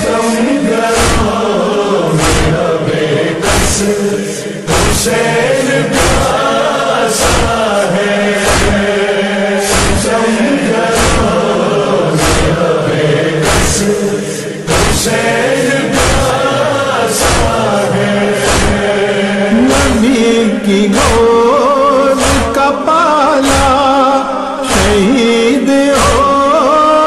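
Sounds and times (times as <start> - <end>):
men chanting in unison: 0.0 - 27.0
chest-beating thumps: 0.9 - 6.5, 7.1 - 21.5, 22.1 - 22.7, 23.4 - 23.9.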